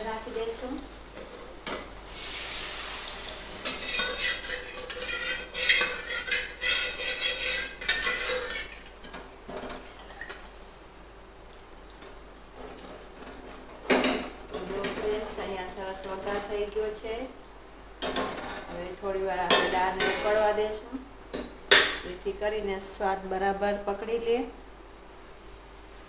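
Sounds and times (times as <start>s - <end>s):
dal hissing in hot pan: 0.3s - 8.7s
metal spoon scraping pressure cooker: 3.6s - 8.7s.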